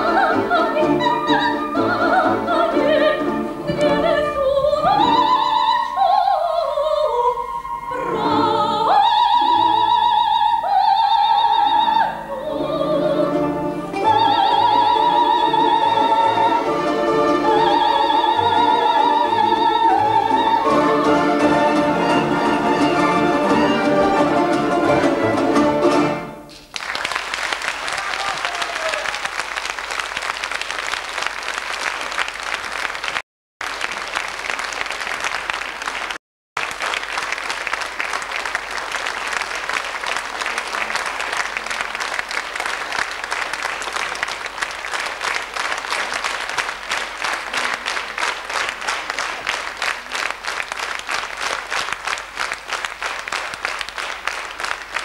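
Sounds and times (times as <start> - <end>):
music: 0.0 - 26.5
audience applauding: 26.5 - 55.0.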